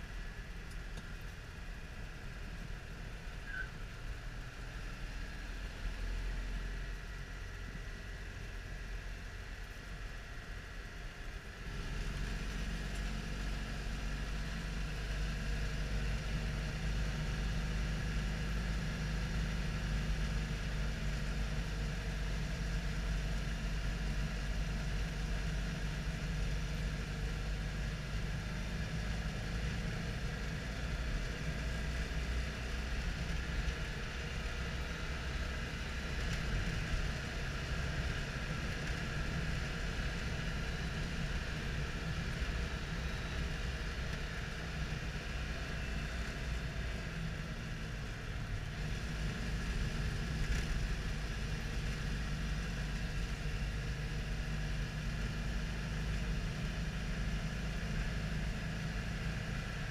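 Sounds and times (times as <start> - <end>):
car engine running inside cabin: 0.0 - 59.9.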